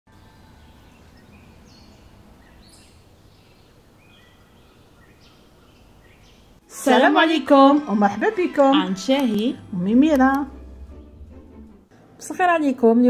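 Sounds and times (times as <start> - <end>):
low steady background noise: 0.1 - 7.8
birds chirping: 0.1 - 11.5.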